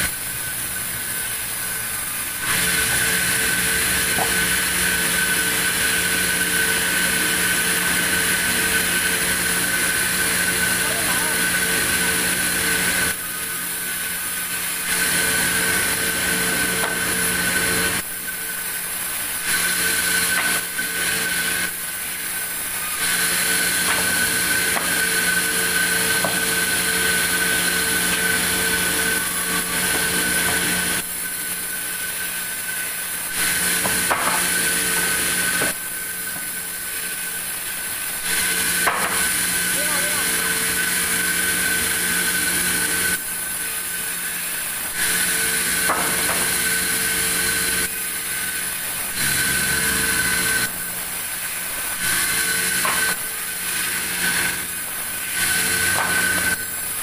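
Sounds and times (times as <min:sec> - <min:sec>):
band saw whining through log: 0:00.0 - 0:57.0
knocks of timber handled: 0:04.1 - 0:04.4.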